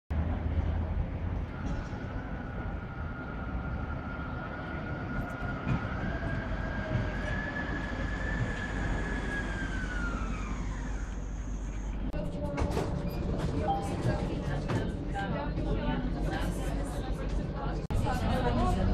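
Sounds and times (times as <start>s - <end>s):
low street rumble: 0.1s - 18.9s
tram motor whine: 0.2s - 12.2s.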